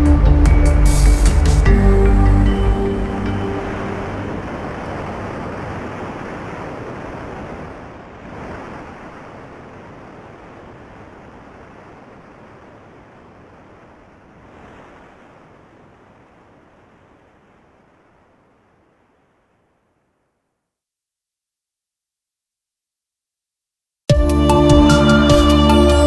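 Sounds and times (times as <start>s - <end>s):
rushing water: 0.0s - 20.1s.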